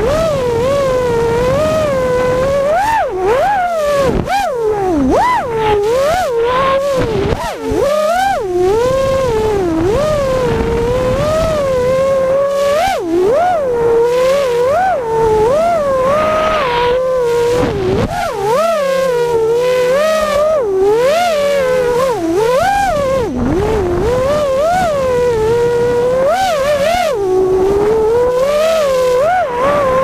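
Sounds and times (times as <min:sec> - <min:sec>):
drone motors and propellers whining: 0:00.0 - 0:30.0.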